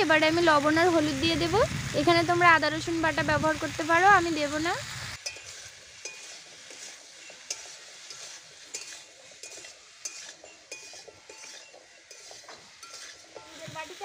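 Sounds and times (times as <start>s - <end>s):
metal spatula scraping a pan: 5.2s - 14.0s.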